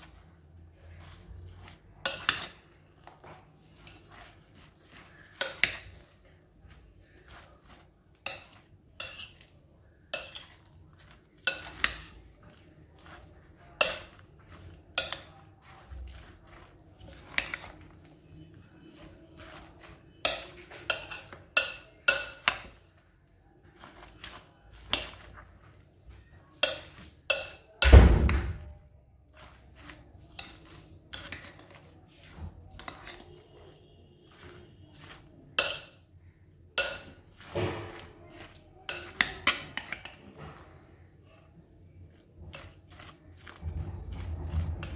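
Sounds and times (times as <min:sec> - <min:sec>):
spoon clinking on glass bowl: 0:07.3 - 0:18.0, 0:19.0 - 0:22.8, 0:32.7 - 0:36.0, 0:36.8 - 0:40.2.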